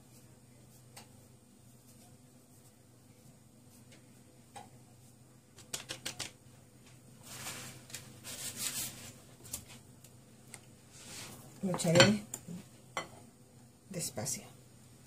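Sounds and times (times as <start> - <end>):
dry rustling and scraping: 7.2 - 9.2.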